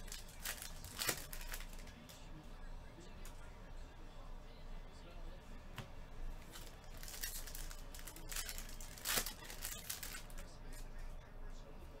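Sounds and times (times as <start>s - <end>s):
plastic wrapper crinkling and tearing: 0.0s - 1.9s, 6.4s - 10.5s.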